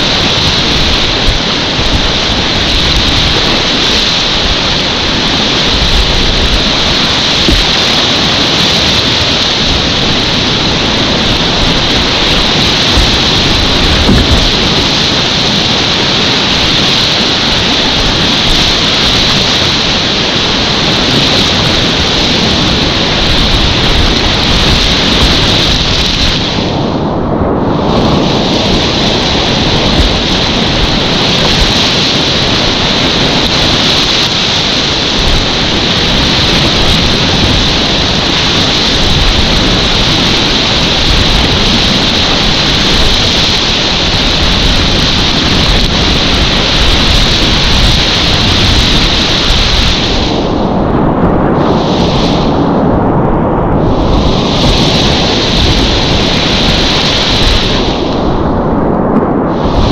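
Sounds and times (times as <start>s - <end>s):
whitewater rushing: 0.0s - 26.9s, 27.7s - 50.7s, 51.6s - 52.6s, 53.8s - 58.5s, 59.5s - 59.9s.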